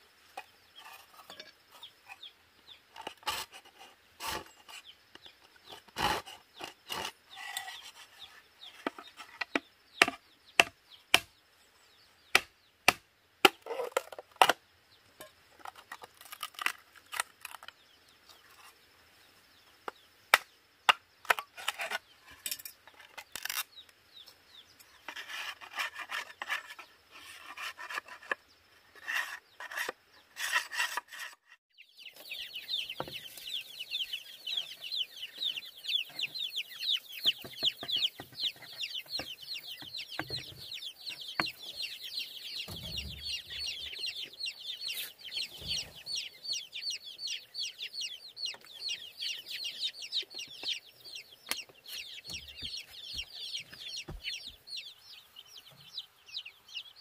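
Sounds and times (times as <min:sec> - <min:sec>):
wood knocking on bamboo: 0:08.8 - 0:11.3.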